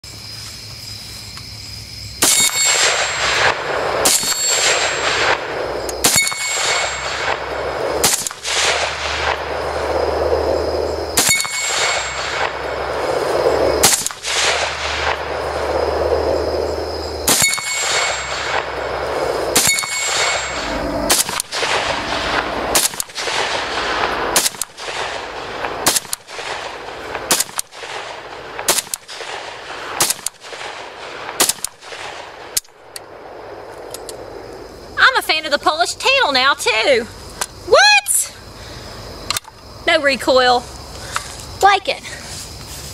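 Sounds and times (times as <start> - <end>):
steel plate targets ringing: 2.2 - 3.2, 4.1 - 5.0, 6.0 - 7.2, 11.2 - 12.4, 17.3 - 18.6, 19.6 - 23.7
rifle shots: 2.2 - 32.6.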